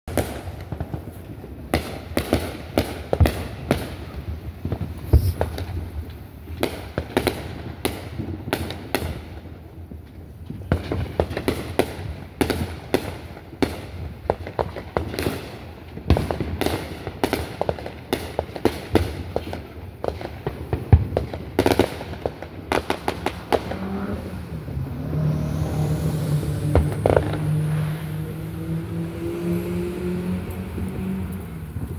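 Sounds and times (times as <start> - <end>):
fireworks bangs and crackles: 0.1 - 29.6, 30.4 - 31.9
car engine accelerating: 23.3 - 31.9.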